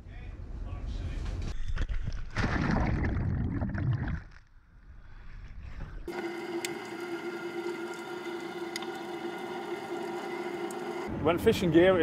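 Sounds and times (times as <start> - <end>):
underwater scooter motor whine: 6.1 - 11.1.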